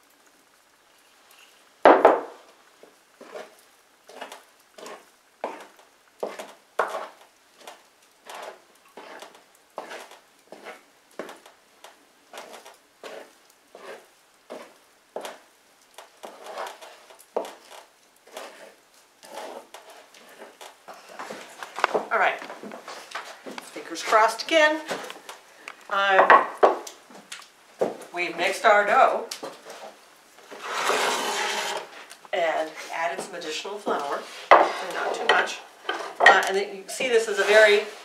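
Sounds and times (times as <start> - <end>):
dough squelching in bowl: 3.2 - 25.4.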